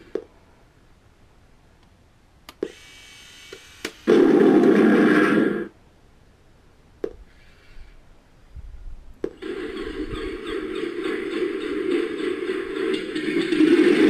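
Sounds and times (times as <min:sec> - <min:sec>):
quiet noise: 0:00.0 - 0:11.0.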